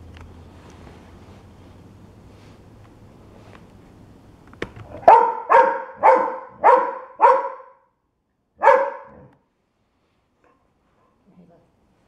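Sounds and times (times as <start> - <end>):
dog barking: 4.9 - 7.8, 8.6 - 9.4.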